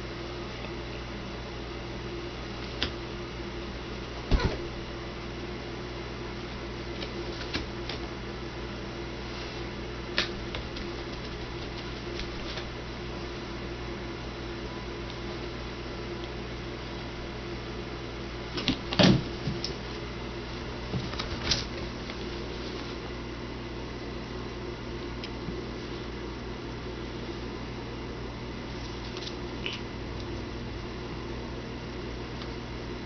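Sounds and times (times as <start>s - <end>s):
steady background hum: 0.0s - 33.0s
cats thumping on cat tree: 4.2s - 4.8s, 18.6s - 19.8s.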